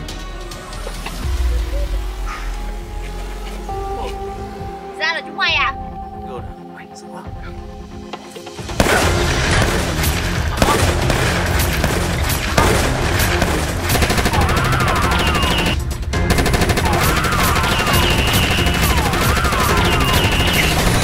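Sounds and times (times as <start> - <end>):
loud action music: 7.4 - 21.0
rapid gunfire: 8.8 - 21.0.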